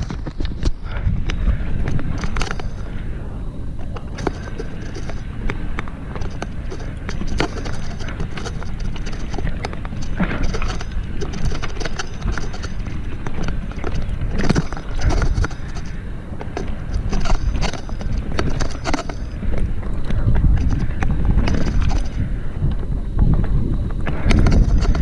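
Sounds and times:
bike knocking and rattling: 0.0 - 25.0
wind rumble on microphone: 0.0 - 25.0.

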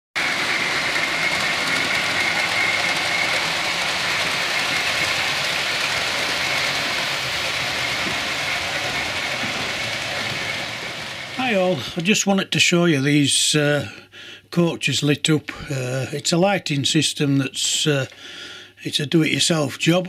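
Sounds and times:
high whine: 0.2 - 12.3
model train wheels rumbling: 0.2 - 18.2, 18.9 - 20.0.

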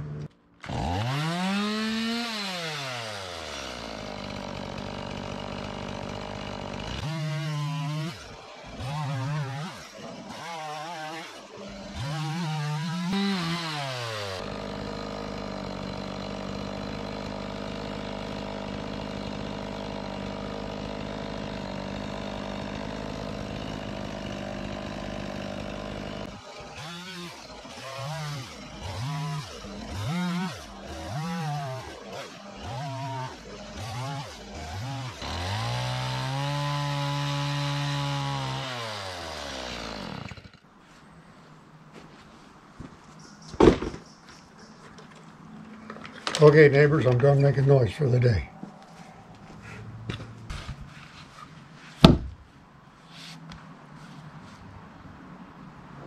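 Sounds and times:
chainsaw revving: 0.0 - 40.6, 46.2 - 48.5
chainsaw cutting wood: 0.0 - 40.7, 43.6 - 44.0, 45.7 - 48.5, 52.0 - 52.4.

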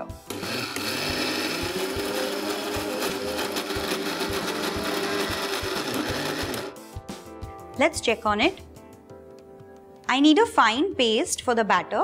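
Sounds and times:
mixer grinder motor whine: 0.3 - 6.8.

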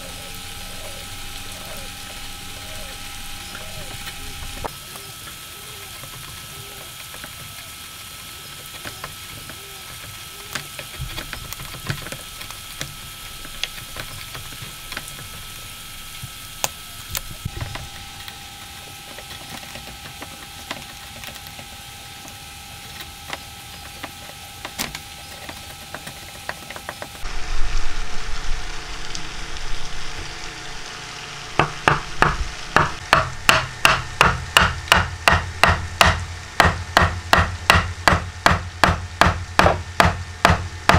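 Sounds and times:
small clicks of shavings: 2.9 - 27.3
chisel scraping wood: 8.7 - 15.6, 16.6 - 27.2.

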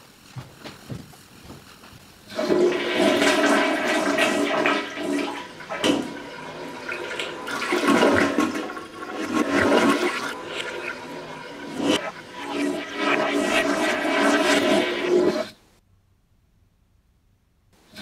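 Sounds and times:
toilet flushing: 2.2 - 15.6.

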